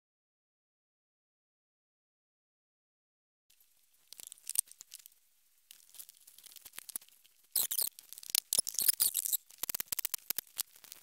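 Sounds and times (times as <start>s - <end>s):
rapid clicks and squeaks: 3.6s - 11.0s.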